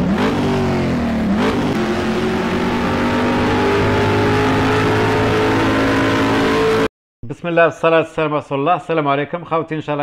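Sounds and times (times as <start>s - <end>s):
car engine revving: 0.0s - 6.9s.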